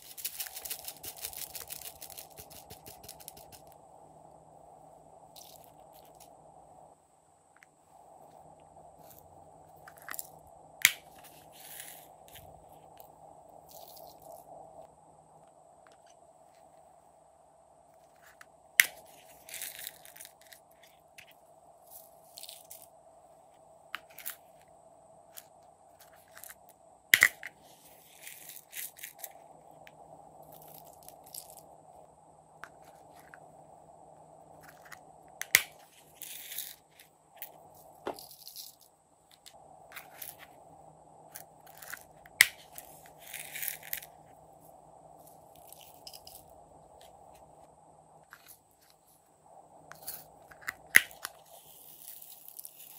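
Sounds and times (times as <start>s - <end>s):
sprinkles rattling out: 0.0s - 3.6s.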